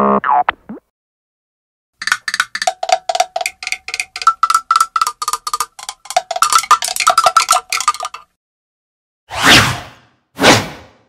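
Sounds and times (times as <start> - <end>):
cartoon percussive knocks: 2.0 - 8.3.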